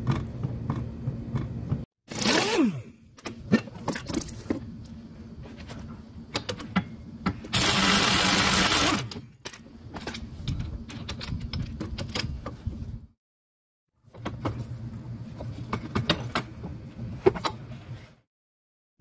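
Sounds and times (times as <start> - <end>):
pneumatic impact wrench: 2.1 - 2.9, 7.5 - 9.2.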